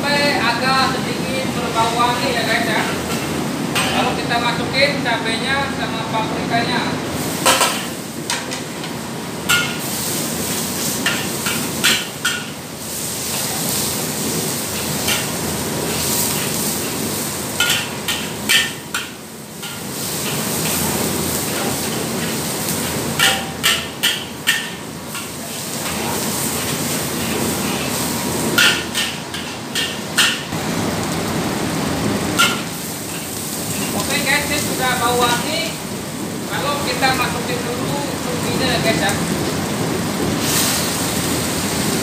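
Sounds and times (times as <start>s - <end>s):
frying hiss: 0.0s - 42.0s
metal ladle clanging on wok: 17.6s - 20.4s, 23.2s - 26.0s, 28.6s - 30.5s.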